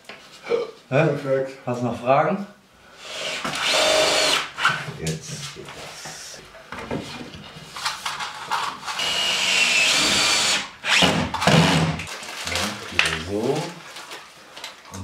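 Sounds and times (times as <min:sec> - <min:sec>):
cordless drill driving screws: 0:03.1 - 0:04.8, 0:08.9 - 0:12.1.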